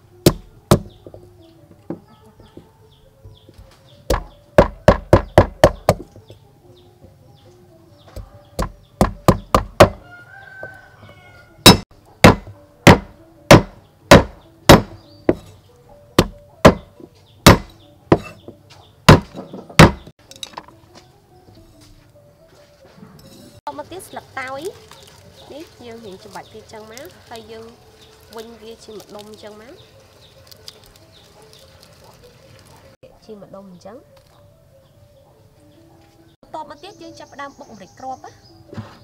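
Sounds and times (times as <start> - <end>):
cleaver chopping on wooden board: 0.2 - 1.2, 4.1 - 6.1, 8.1 - 10.0, 11.6 - 15.5, 16.2 - 18.5, 19.1 - 20.1.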